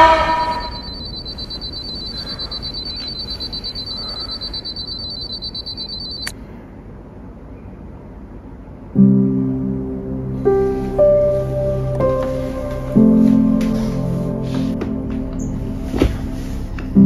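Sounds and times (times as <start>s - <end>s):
phone alarm tone: 0.0s - 6.3s
alarm switch click: 0.0s - 6.4s.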